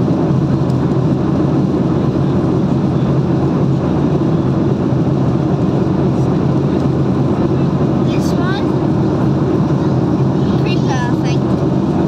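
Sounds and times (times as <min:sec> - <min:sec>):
car interior road and engine noise: 0:00.0 - 0:12.0.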